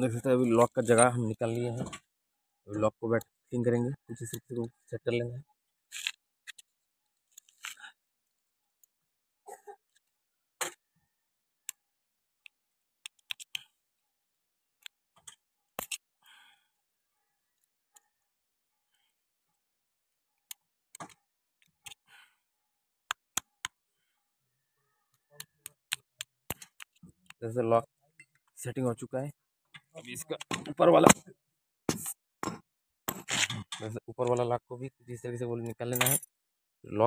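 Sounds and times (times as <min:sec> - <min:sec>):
metal clicks and scrapes: 0:14.8 - 0:16.1.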